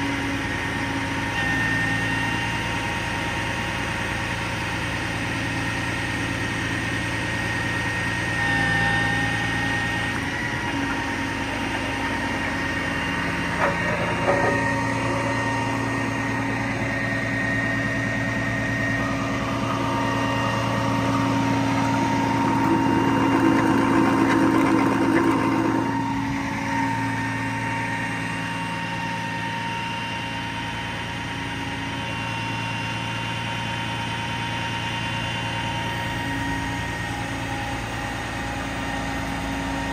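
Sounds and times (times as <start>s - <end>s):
diesel engine running: 0.0s - 39.9s
hydraulic whining: 7.5s - 30.0s.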